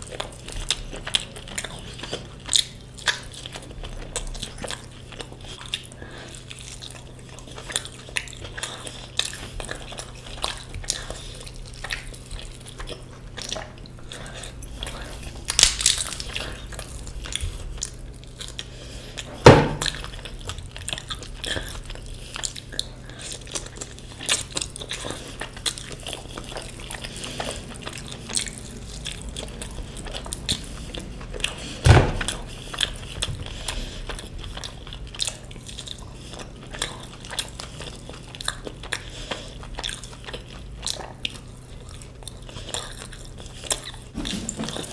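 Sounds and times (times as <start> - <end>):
chewing and biting: 0.0 - 44.9
steady low hum: 0.0 - 44.9
sharp knocks: 19.4 - 20.0.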